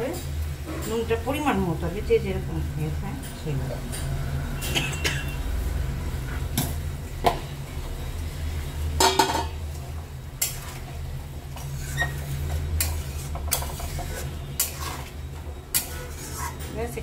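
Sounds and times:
metal kitchenware clinking: 9.0 - 9.6
spatula stirring curry: 9.2 - 17.0.

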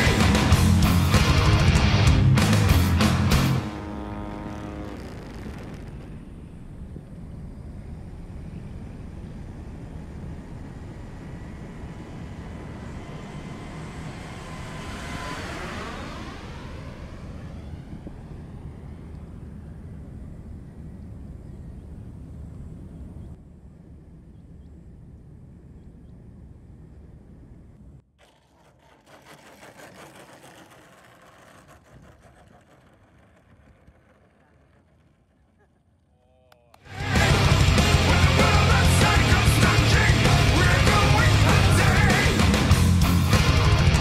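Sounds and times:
heavy wind rush: 0.0 - 23.3, 36.8 - 44.0
model plane engine and propeller: 0.0 - 44.0.

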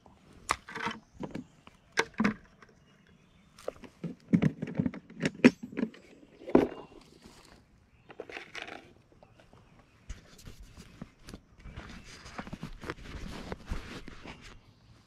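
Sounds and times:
fishing gear clicking and rattling: 8.1 - 9.1.

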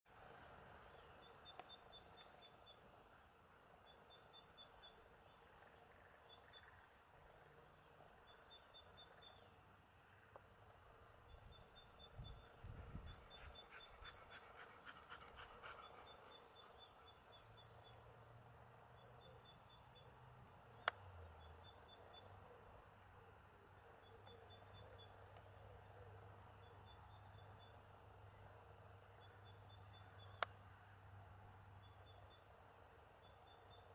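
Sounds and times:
songbird singing: 0.1 - 33.9.

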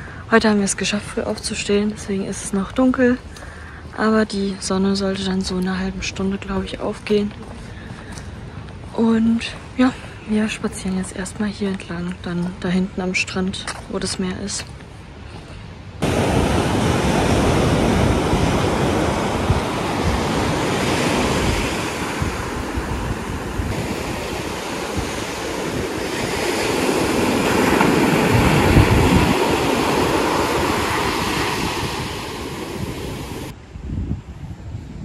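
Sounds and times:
wind buffeting microphone: 15.8 - 35.0
ocean surf washing in: 15.9 - 33.6.

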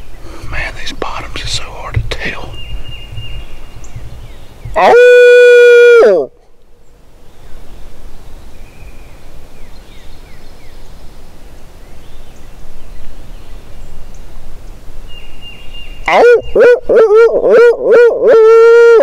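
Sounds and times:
bird chirps: 0.0 - 5.2
steady hiss with low rumble: 0.0 - 17.1.

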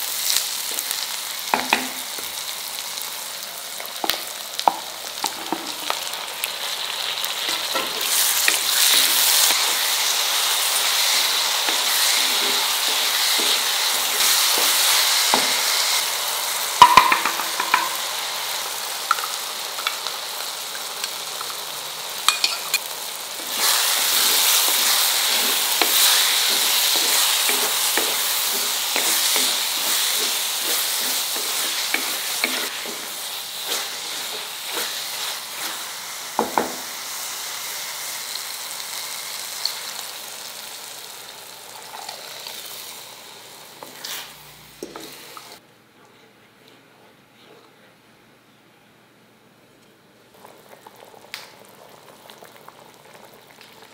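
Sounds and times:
vegetables sizzling in hot oil: 0.0 - 45.6
spatula stirring and scraping: 10.7 - 15.9, 23.4 - 36.2, 43.8 - 45.2.

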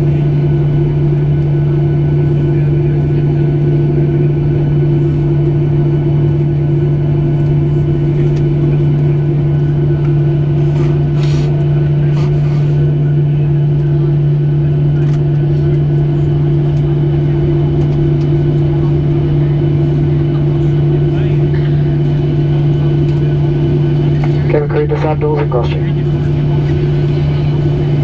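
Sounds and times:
aircraft cabin drone: 0.0 - 28.0.

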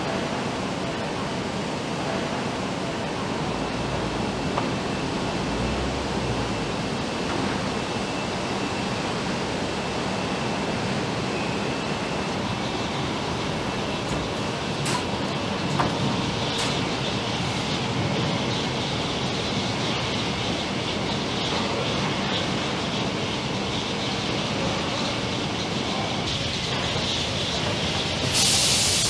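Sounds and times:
factory hall noise: 0.0 - 29.0.

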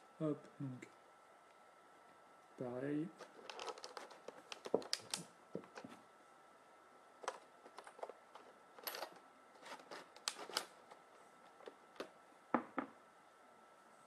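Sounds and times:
small plastic parts clicking: 3.2 - 5.9, 7.2 - 12.2.

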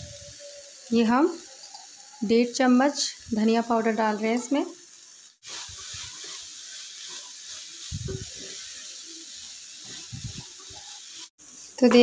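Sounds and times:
beans sizzling in pan: 0.0 - 12.0
wooden spatula stirring and scraping: 5.4 - 11.8.

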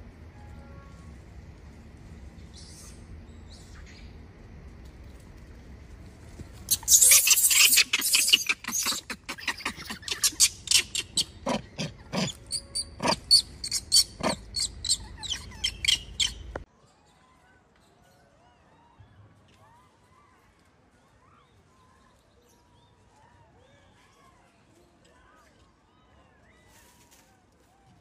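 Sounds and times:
baby monkey screaming: 6.7 - 16.4.

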